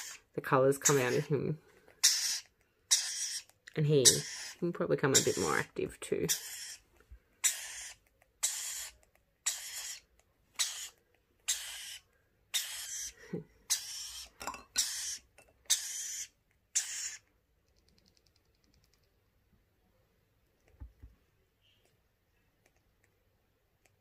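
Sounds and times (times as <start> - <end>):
bird chick raspy begging calls: 2.0 - 6.8, 7.4 - 17.2.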